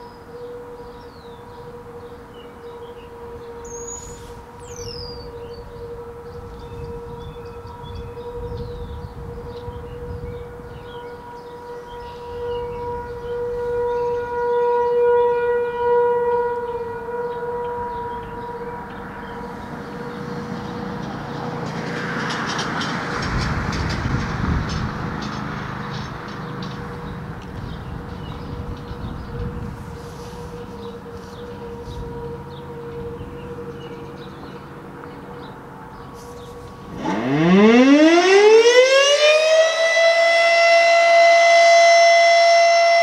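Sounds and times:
rotating siren alert tone: 0.0s - 21.5s, 28.6s - 43.0s
rumbling passing vehicle: 17.8s - 43.0s.

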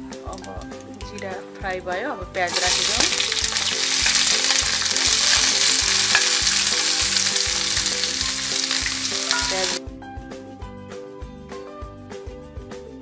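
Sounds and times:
background music with steady beat: 0.0s - 13.0s
onions sizzling in hot oil: 2.5s - 9.8s.

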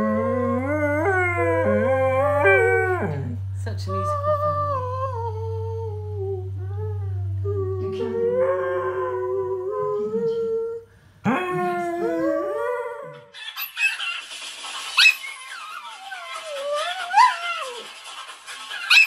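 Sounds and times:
steady low hum: 0.0s - 13.3s
dog howling: 0.0s - 13.4s.

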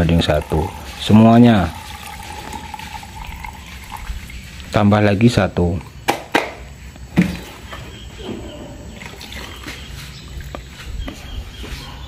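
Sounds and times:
liquid trickling into cup: 0.0s - 5.9s, 9.0s - 10.6s
plastic can clicks: 6.1s - 6.6s.

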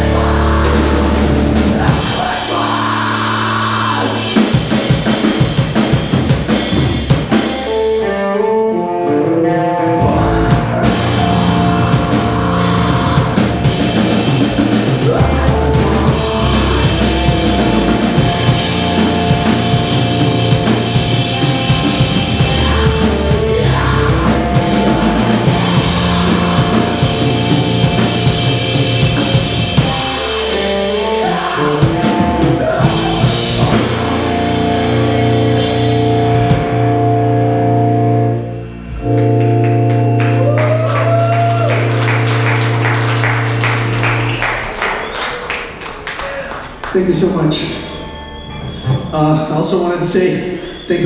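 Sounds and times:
person singing: 0.0s - 4.8s, 9.2s - 35.7s
drum kit: 0.0s - 8.6s, 9.5s - 38.0s, 39.0s - 47.2s
electric guitar: 0.0s - 46.8s
bass guitar: 0.0s - 51.0s.

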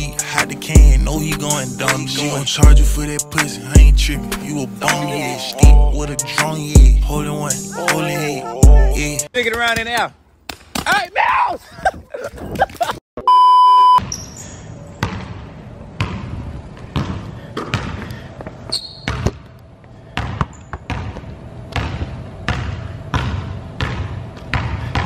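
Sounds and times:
loud steady beep: 13.2s - 14.0s
shoe squeaks: 14.0s - 14.8s, 18.6s - 19.4s, 20.5s - 20.9s
basketball bouncing in hall: 14.0s - 25.0s.

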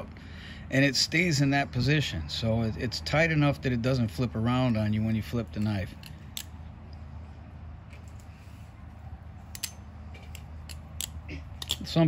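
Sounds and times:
metallic knife handle clicks: 9.5s - 12.0s.

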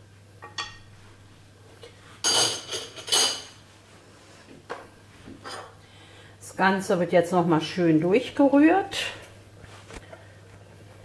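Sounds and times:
metal spoon clinking on cookware: 2.2s - 3.6s.

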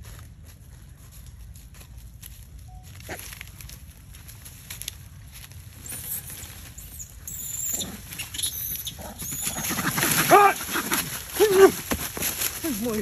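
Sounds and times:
monkeys rustling dry leaves: 0.0s - 13.0s
high wavering chirps: 5.8s - 9.6s.

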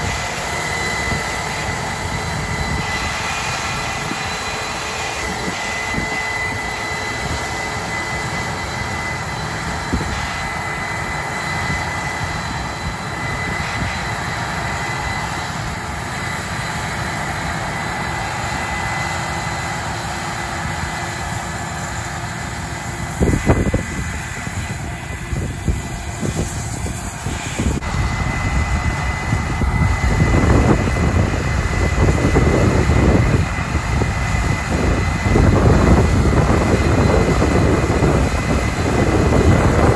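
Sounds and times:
combine diesel drone: 0.0s - 39.9s
steady high whine: 0.0s - 39.9s
low rumble: 23.1s - 39.9s.

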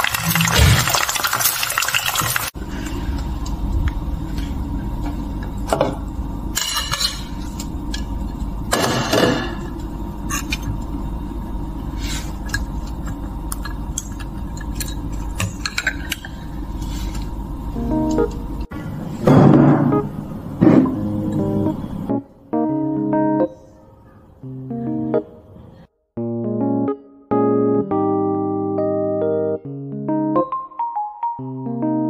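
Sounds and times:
egg sizzling in hot oil: 0.0s - 2.6s
steady low hum: 2.6s - 23.2s.

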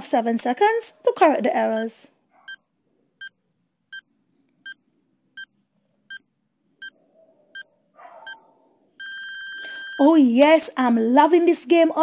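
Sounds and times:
short electronic timer beeps: 9.0s - 10.1s.

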